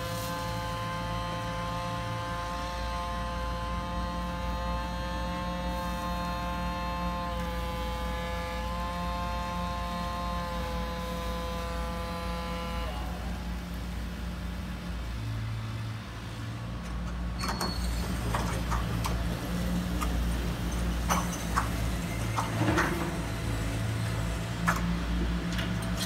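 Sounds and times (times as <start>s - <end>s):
toy excavator motors humming: 0.0s - 15.4s, 16.4s - 26.0s.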